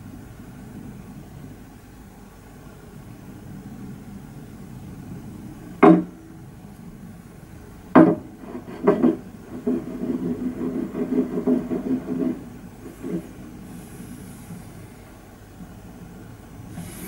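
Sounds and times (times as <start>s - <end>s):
glass knocking on wood: 8.0s - 8.2s.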